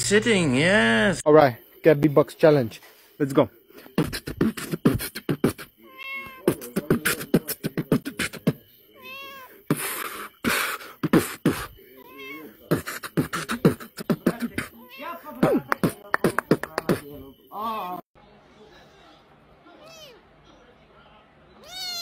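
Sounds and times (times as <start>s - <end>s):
breathy hiss: 2.8s - 15.0s
person beatboxing: 3.8s - 5.8s, 6.4s - 8.6s, 9.7s - 11.8s, 12.7s - 14.8s, 15.4s - 17.2s
cat meowing: 5.8s - 6.6s, 9.0s - 9.6s, 12.0s - 12.6s, 14.8s - 15.4s, 21.6s - 22.0s.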